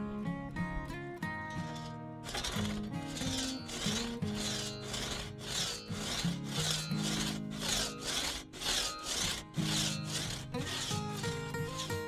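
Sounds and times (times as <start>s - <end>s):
hand saw cutting log: 1.6s - 12.0s.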